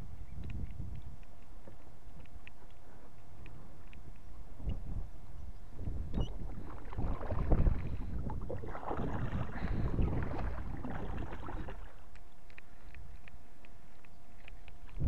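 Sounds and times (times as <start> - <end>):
kayak paddle splashing: 6.3 - 12.8.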